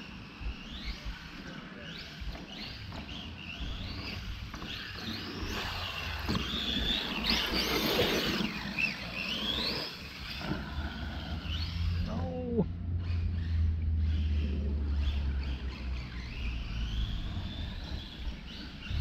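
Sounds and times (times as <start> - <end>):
electric motor whining: 1.8 - 15.6.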